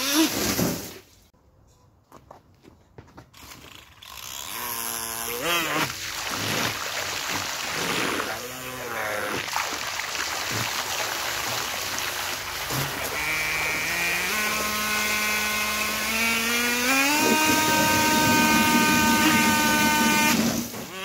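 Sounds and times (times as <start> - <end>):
water jet rushing: 5.6 - 15.2
motor whine: 12.7 - 21.0.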